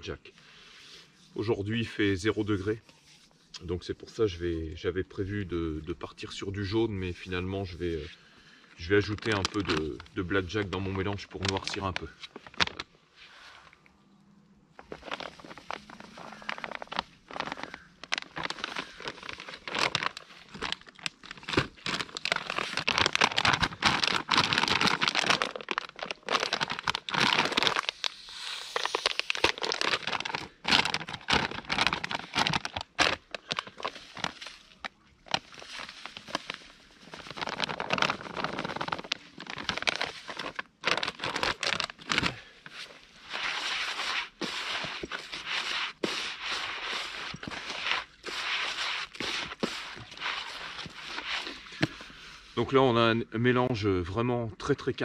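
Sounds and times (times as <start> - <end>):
plastic bag crinkling: 8.8 - 13.0, 14.7 - 52.2
crumbly mix rasping: 14.8 - 28.1.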